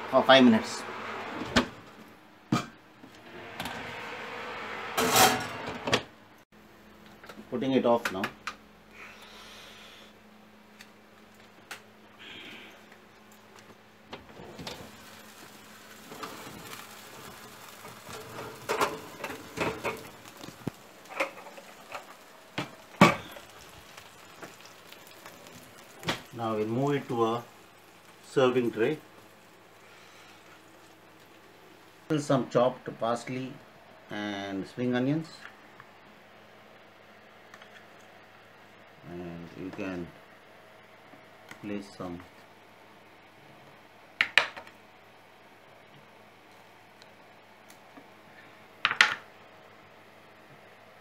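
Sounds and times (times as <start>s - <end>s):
oven rack rattling: 16.1s - 24.0s.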